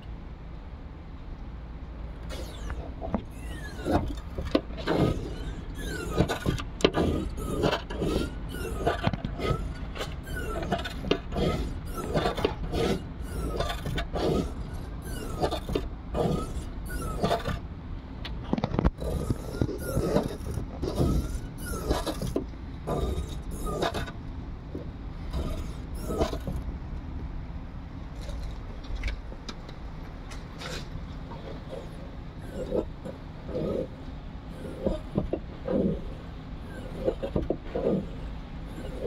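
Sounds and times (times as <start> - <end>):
gas strut squeaking: 2.2 - 17.6, 18.7 - 24.2, 25.3 - 26.6.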